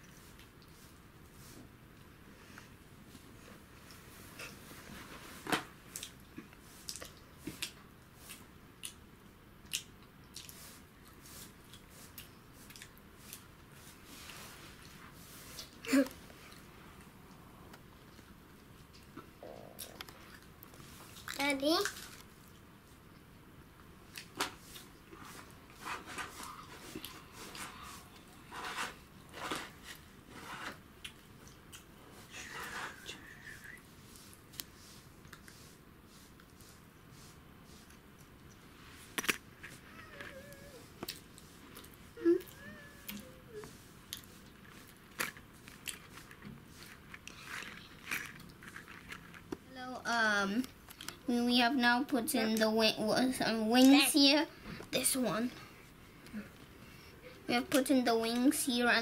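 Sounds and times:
plastic parts rustling scrapes: 28.4 - 30.8.

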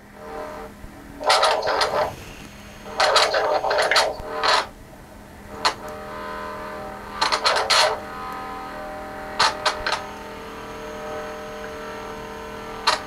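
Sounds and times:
crackling distorted electronic noise: 0.6 - 4.8, 7.0 - 8.3, 9.3 - 13.0.

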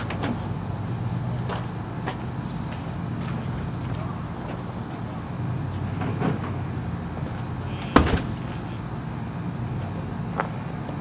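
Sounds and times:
sharp knock: 8.0 - 8.4.

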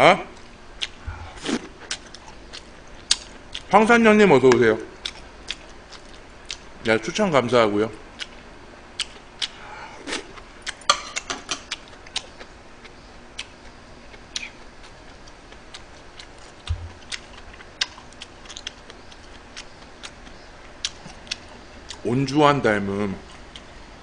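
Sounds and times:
chewing: 0.4 - 3.7, 5.0 - 6.6, 9.0 - 22.0.

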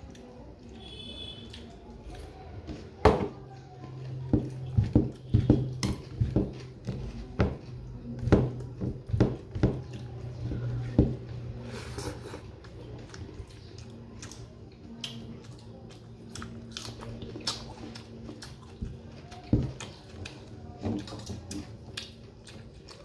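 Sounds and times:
fingers mixing rice on steel plate: 4.0 - 12.4
eating mouth sounds: 11.6 - 23.0.

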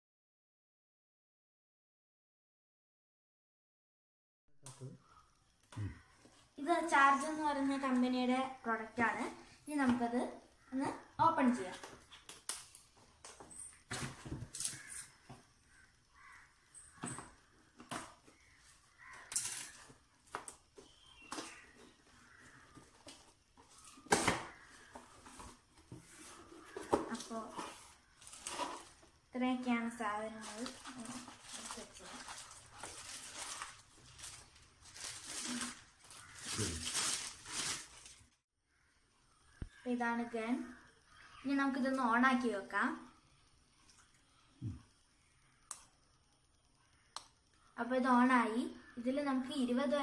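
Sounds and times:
plastic wrapping crinkling: 26.2 - 29.1, 30.3 - 38.4.

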